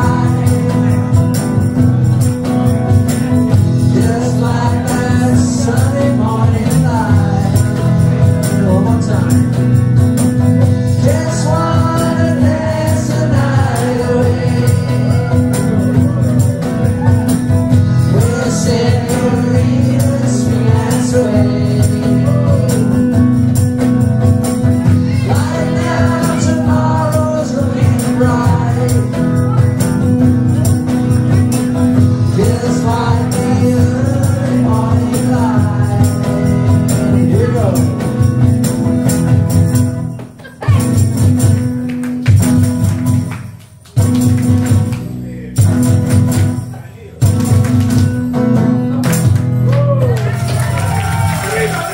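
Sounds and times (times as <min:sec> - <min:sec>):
man and woman singing: 0:00.0 - 0:01.4, 0:03.7 - 0:09.6, 0:10.6 - 0:17.2, 0:17.8 - 0:23.3, 0:24.6 - 0:30.4, 0:31.3 - 0:38.0
electric guitar: 0:00.0 - 0:51.9
tambourine shaken: 0:00.0 - 0:51.9.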